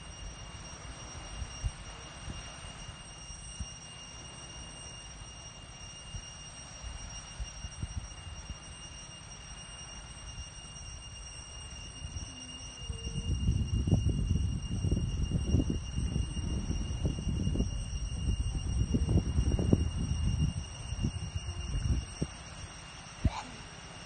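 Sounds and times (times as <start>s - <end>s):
steady high-pitched whine: 0.0s - 24.0s
wind rumbling on microphone: 11.8s - 23.8s.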